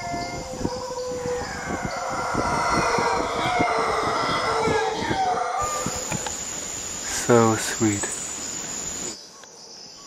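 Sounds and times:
monkeys howling: 0:00.0 - 0:06.4.

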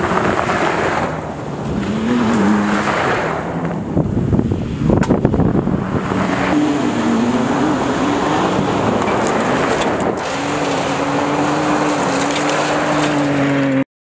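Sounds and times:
engine running hard: 0:00.0 - 0:13.8
tyres spraying dirt: 0:05.9 - 0:13.8.

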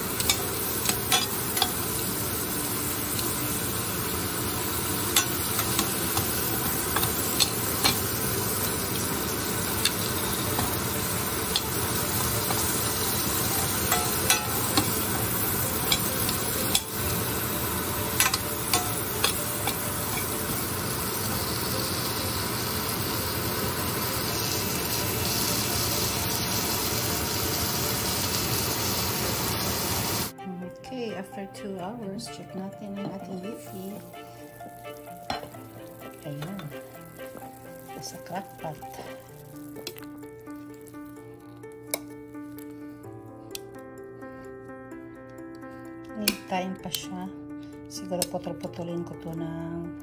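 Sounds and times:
carrots sizzling in a pan: 0:00.0 - 0:30.3, 0:33.2 - 0:42.9.

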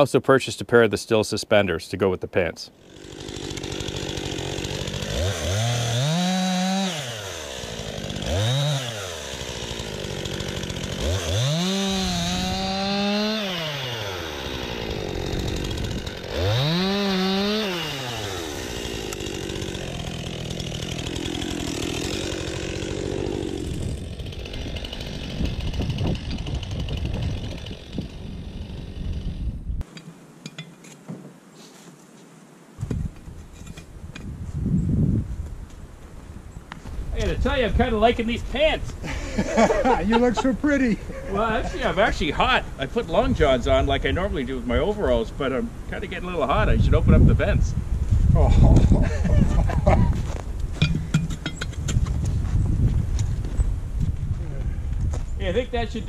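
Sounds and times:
chainsaw cutting logs: 0:02.8 - 0:29.9, 0:38.6 - 0:43.3.

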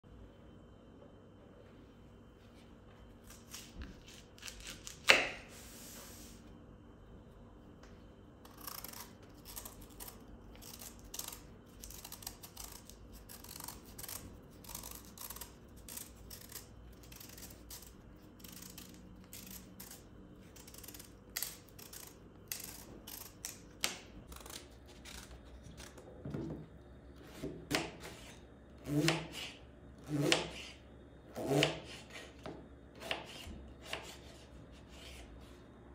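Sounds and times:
knife scraping vegetable skin: 0:03.2 - 0:06.4, 0:08.4 - 0:26.0, 0:33.0 - 0:35.3.

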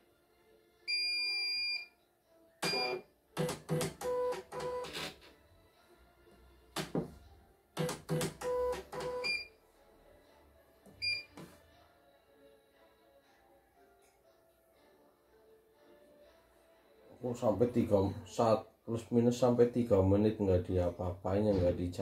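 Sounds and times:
embroidery machine beeping: 0:02.6 - 0:05.0, 0:07.8 - 0:09.5, 0:11.0 - 0:11.4.

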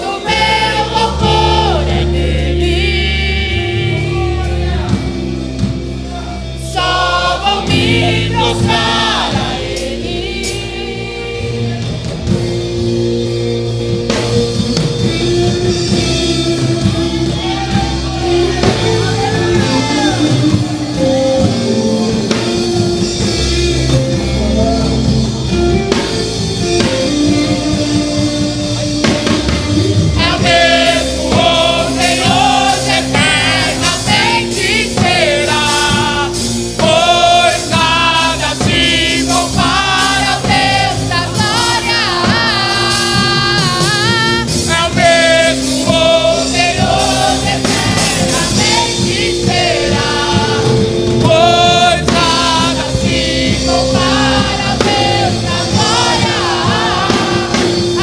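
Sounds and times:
band with drum kit: 0:00.0 - 0:58.0
gospel choir singing: 0:00.0 - 0:58.0
voices with wide vibrato: 0:30.0 - 0:58.0.

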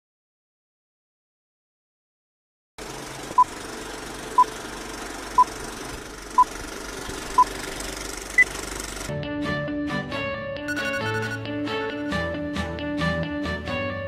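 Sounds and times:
film projector hiss and rattle: 0:02.8 - 0:09.1
short beeps: 0:10.7 - 0:11.5.

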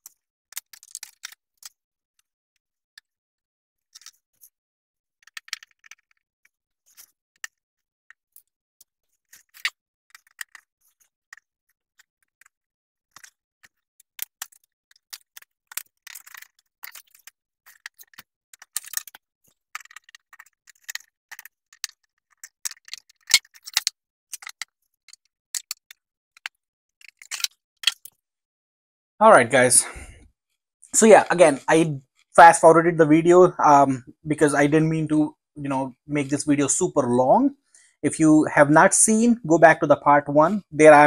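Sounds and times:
clicks and clatter of tools: 0:00.0 - 0:02.3, 0:03.9 - 0:04.5, 0:05.2 - 0:28.2.

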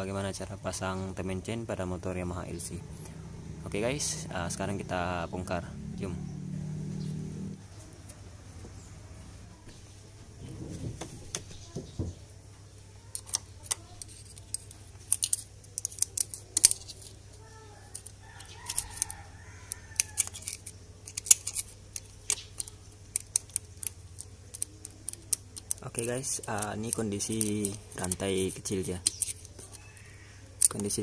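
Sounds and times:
metal tool clicking on engine: 0:17.9 - 0:29.8.

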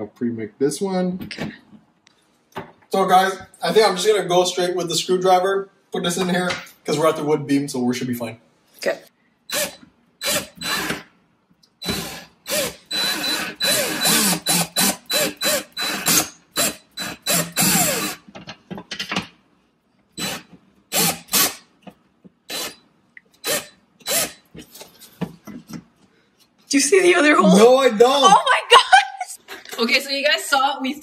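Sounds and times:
cordless drill driving screw into wood: 0:09.5 - 0:11.1, 0:11.8 - 0:18.3, 0:20.2 - 0:21.6, 0:22.5 - 0:22.8, 0:23.4 - 0:24.5.

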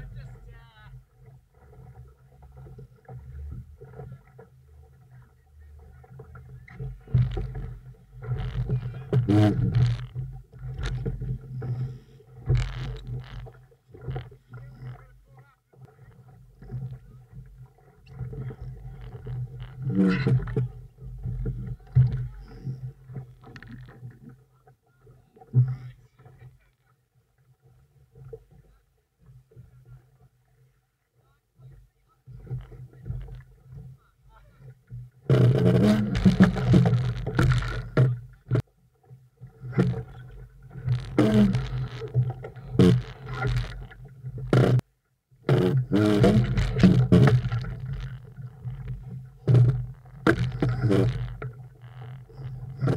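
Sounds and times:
water splashing along hull: 0:00.0 - 0:52.9
short moaning tone: 0:41.0 - 0:43.7.

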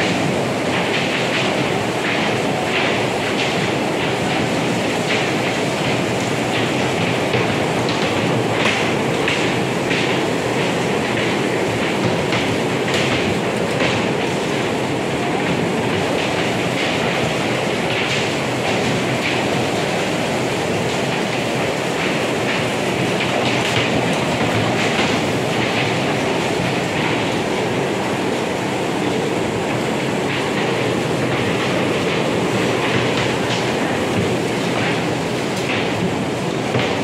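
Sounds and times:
bumper cars rumbling: 0:00.0 - 0:37.0.

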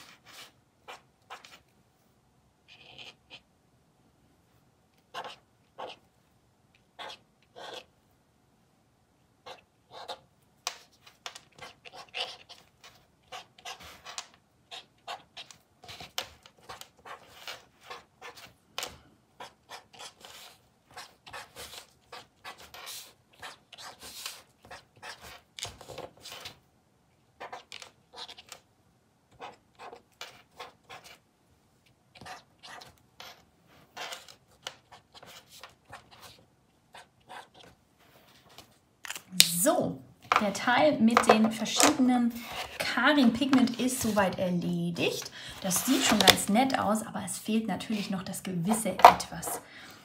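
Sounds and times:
brush pen scratching on cardboard: 0:00.0 - 0:01.7, 0:02.6 - 0:03.5, 0:05.0 - 0:06.1, 0:06.8 - 0:07.9, 0:09.4 - 0:18.6, 0:19.4 - 0:26.6, 0:27.4 - 0:28.6, 0:29.3 - 0:31.3, 0:32.2 - 0:38.8, 0:41.2 - 0:44.4, 0:45.1 - 0:46.4.

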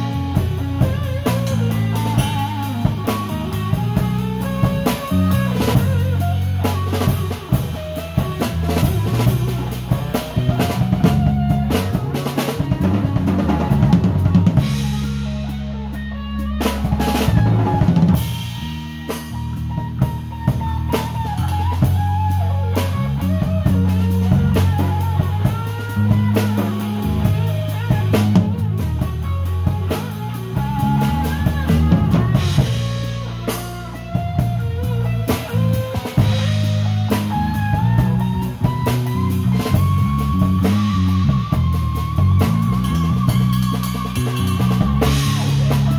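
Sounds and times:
bass guitar line: 0:00.0 - 0:45.9
drum kit: 0:00.0 - 0:45.9
electric guitar bending lead notes: 0:00.0 - 0:45.9
rock band playing: 0:00.0 - 0:45.9.

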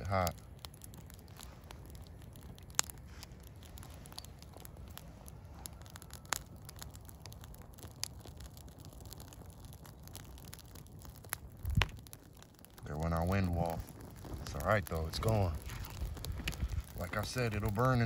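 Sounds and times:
sharp pops from fire: 0:00.0 - 0:18.0
twig fire crackling: 0:00.0 - 0:18.0
wind rumble on microphone: 0:11.2 - 0:12.8, 0:13.7 - 0:18.0.

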